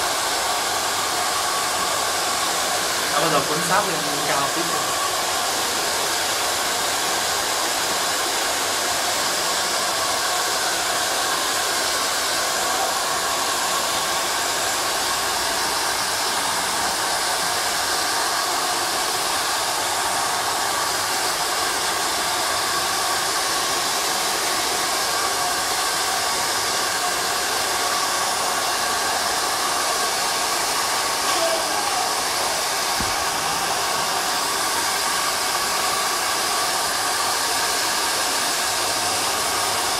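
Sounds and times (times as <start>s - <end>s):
hair dryer running: 0.0s - 39.9s.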